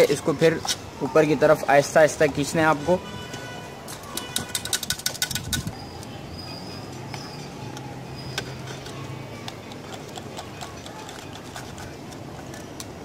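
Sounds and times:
wiring clicks and rattles: 0:03.9 - 0:05.8.

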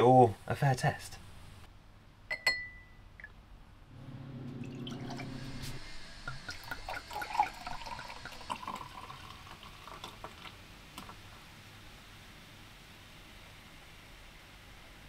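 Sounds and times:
low hum: 0:02.3 - 0:09.1
sparkling water pouring into glass: 0:04.2 - 0:11.3
fizzing with small pops: 0:08.6 - 0:11.5.

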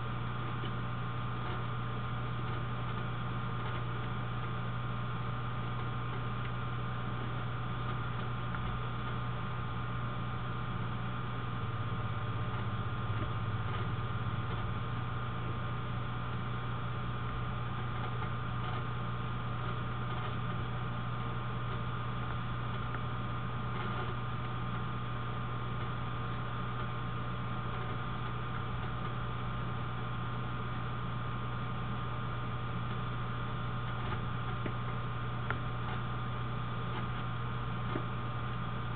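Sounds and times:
low electrical hum: 0:00.0 - 0:38.9.

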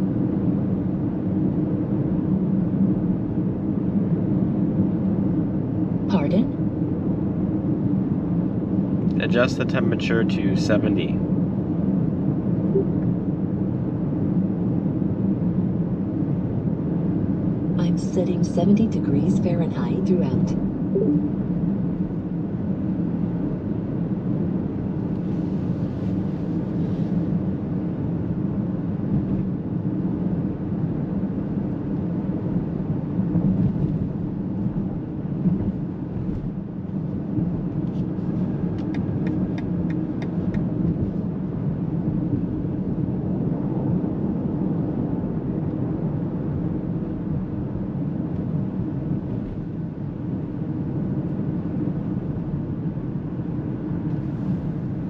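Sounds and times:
car cabin engine and tyre hum: 0:00.0 - 0:55.0.

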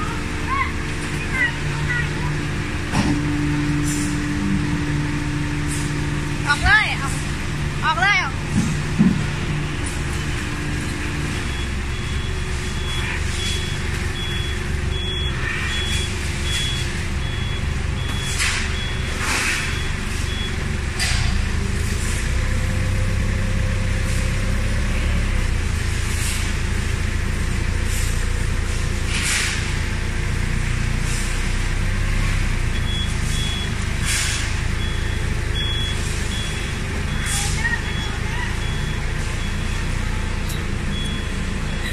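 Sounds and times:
forklift engine running: 0:00.0 - 0:41.9
reversing alarm beeps: 0:09.5 - 0:20.7, 0:32.7 - 0:41.9.

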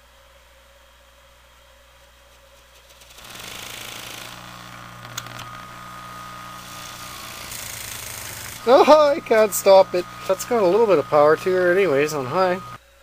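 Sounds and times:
electric fan motor humming: 0:02.4 - 0:13.0
sharp clicks: 0:03.9 - 0:05.6.

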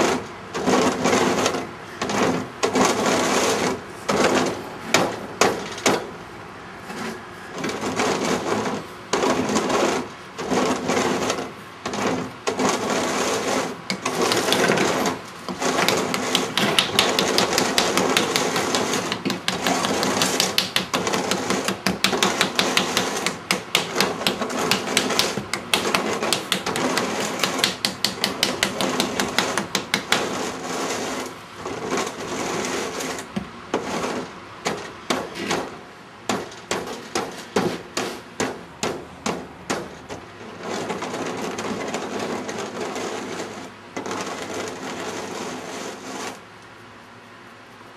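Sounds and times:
rapid tapping: 0:11.9 - 0:31.0.

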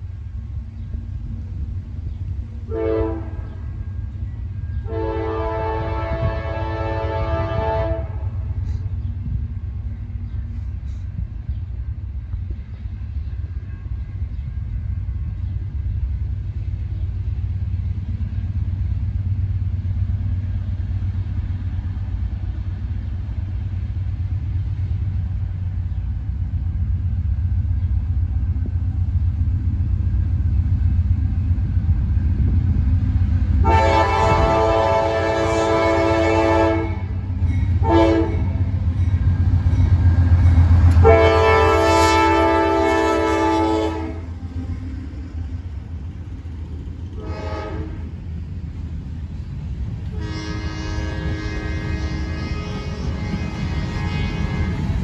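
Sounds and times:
diesel locomotive rumble: 0:00.0 - 0:55.0
train horn: 0:02.7 - 0:03.9, 0:04.8 - 0:08.8, 0:33.6 - 0:38.8, 0:40.4 - 0:44.4, 0:47.1 - 0:48.2, 0:50.0 - 0:55.0.

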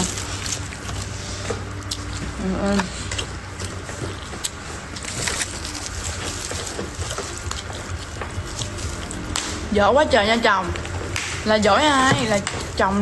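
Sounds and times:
chewing: 0:00.0 - 0:09.7
low steady hum: 0:00.0 - 0:13.0.

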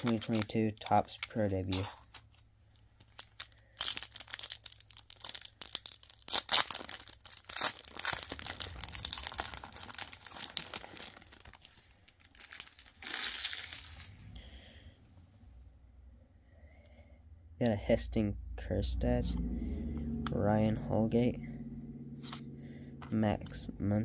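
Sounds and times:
plastic wrapper crinkling: 0:00.0 - 0:14.2.

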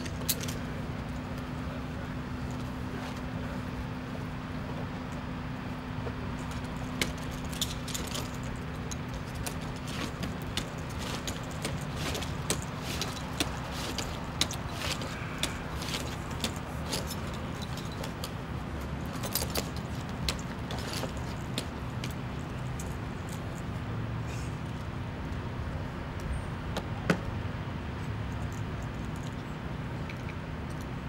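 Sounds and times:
metal hardware jingling: 0:00.0 - 0:00.7, 0:06.4 - 0:23.6
low engine hum: 0:00.0 - 0:31.0
climbing gaffs biting into wood: 0:09.4 - 0:18.3.

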